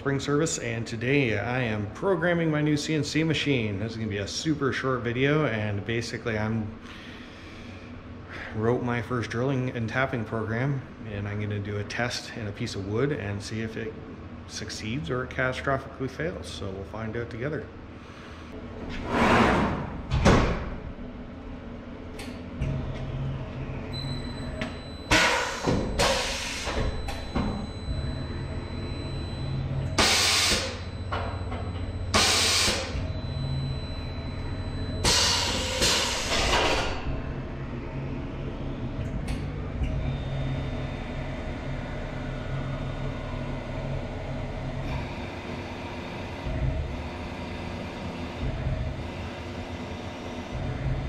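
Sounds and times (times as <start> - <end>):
machine hum: 0.0 - 51.0
spindle whine: 20.8 - 51.0
air blasts from pneumatic drawbar: 25.1 - 27.0, 30.0 - 30.9, 32.1 - 33.0, 35.0 - 37.0.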